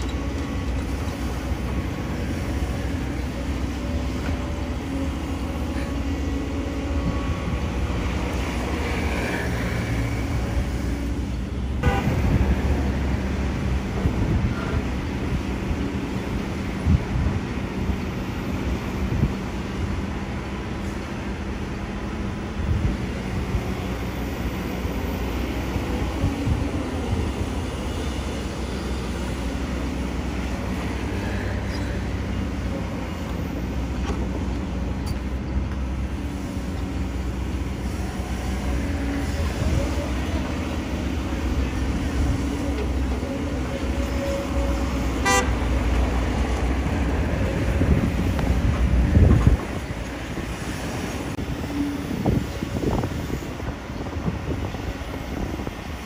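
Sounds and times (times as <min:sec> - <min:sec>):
excavator diesel engine: 0:00.0 - 0:56.0
passing road traffic: 0:00.0 - 0:56.0
horn toot: 0:45.2 - 0:45.8.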